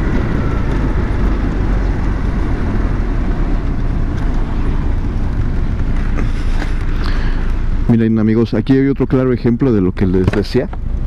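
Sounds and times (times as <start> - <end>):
wind buffeting microphone: 0.0 - 7.9
road noise: 0.0 - 11.0.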